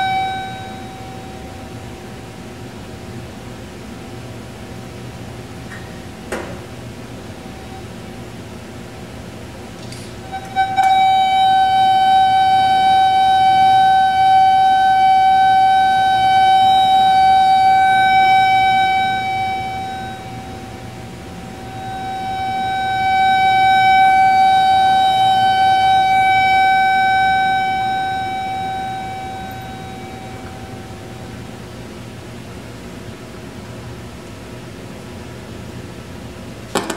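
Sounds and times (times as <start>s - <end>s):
buzzy tone from speaker: 10.2s - 31.6s.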